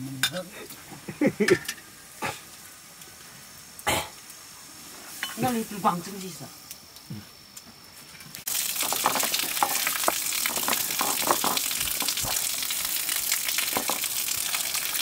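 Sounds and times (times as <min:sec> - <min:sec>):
watery hiss: 0:08.5 - 0:15.0.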